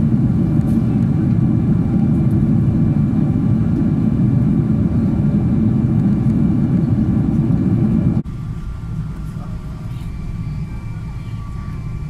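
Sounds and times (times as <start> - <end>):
airliner engines and airflow rumble: 0.0 - 12.0
faint steady whine: 0.0 - 12.0.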